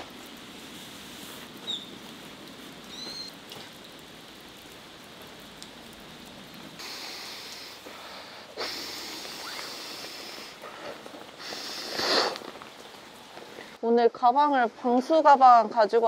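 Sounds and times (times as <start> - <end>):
steady rain falling: 0.0 - 16.0
loud hissing: 6.8 - 13.8.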